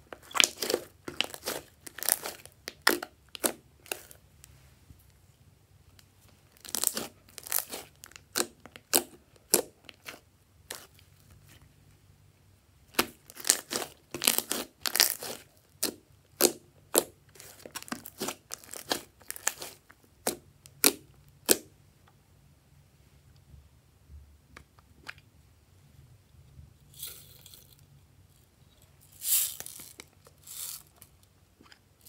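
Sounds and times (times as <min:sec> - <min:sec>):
slime crackling and popping: 0:00.1 - 0:04.2, 0:06.5 - 0:10.9, 0:12.9 - 0:21.7.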